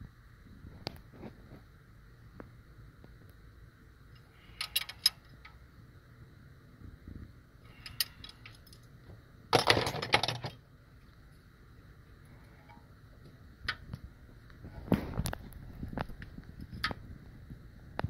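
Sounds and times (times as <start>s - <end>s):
metallic rattling clatter: 9.5s - 10.6s.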